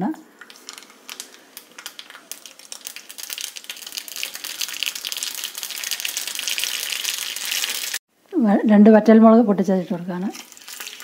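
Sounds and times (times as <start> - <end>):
mustard seeds popping in oil: 0.4 - 8.0, 10.4 - 11.0.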